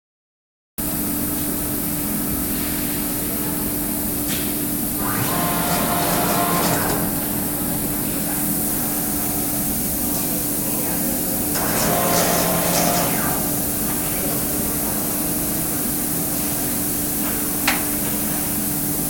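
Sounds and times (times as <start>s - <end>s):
machine hum and fan hiss: 0.8s - 19.0s
faint machine whine: 4.8s - 16.0s.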